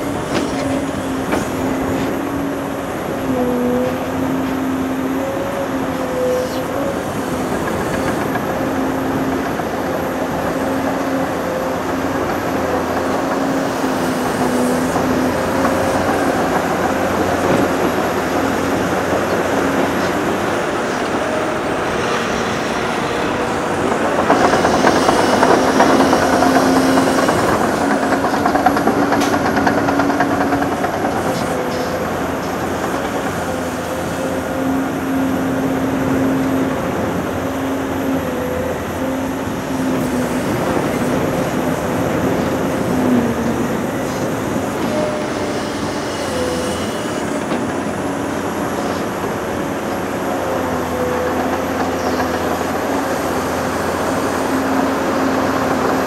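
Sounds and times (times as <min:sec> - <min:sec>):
heavy diesel machinery humming: 0:00.0 - 0:56.0.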